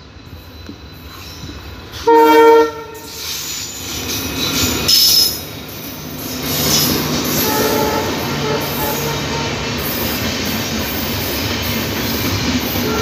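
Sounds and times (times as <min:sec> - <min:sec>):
coaches rolling on rails: 0:00.0 - 0:13.0
diesel locomotive passing: 0:00.0 - 0:13.0
locomotive horn blast: 0:02.0 - 0:03.2, 0:07.2 - 0:09.8
high squeal: 0:03.0 - 0:11.3.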